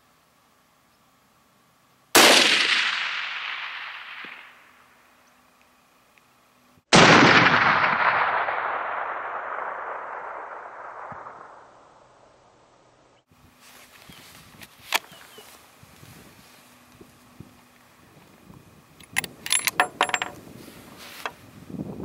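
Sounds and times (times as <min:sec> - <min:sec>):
rifle shots with rolling echo: 0:02.2 - 0:04.9, 0:06.9 - 0:12.4.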